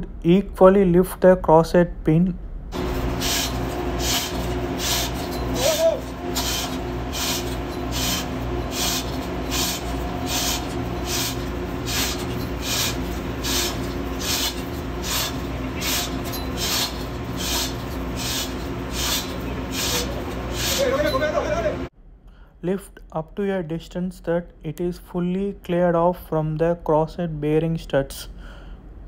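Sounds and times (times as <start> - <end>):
machinery hum: 0.0 - 22.2
chain rasping through hoist: 2.8 - 21.6.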